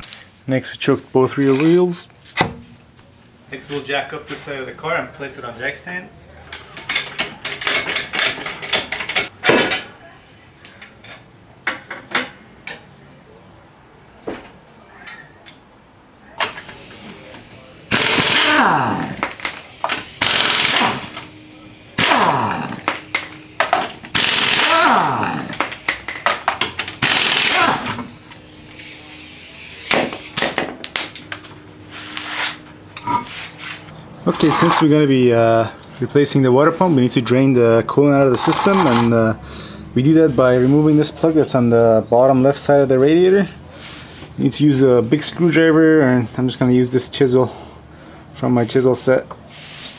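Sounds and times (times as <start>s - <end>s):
steady hiss: 16.4s - 24.3s, 28.0s - 30.5s
floor jack clicking: 17.9s - 21.2s, 22.0s - 28.1s.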